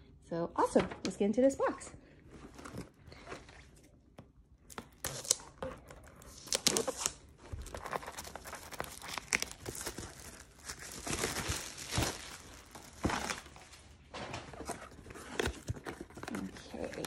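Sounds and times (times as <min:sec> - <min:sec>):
plastic shrink-wrap crinkling: 0:04.6 - 0:17.0.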